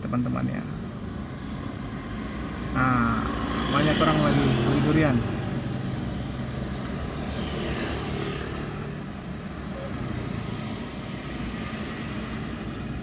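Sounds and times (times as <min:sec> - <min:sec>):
car engine and road rumble: 0:00.0 - 0:13.0
street traffic: 0:00.0 - 0:13.0.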